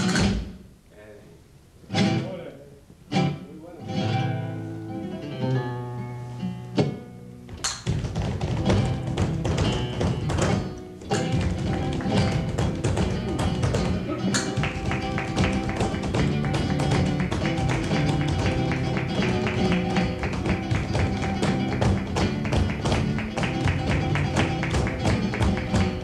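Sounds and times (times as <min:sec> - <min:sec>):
flamenco acoustic guitar: 0:00.0 - 0:00.8, 0:01.8 - 0:02.4, 0:03.0 - 0:26.0
heeled footwork tapping on stage: 0:06.8 - 0:26.0.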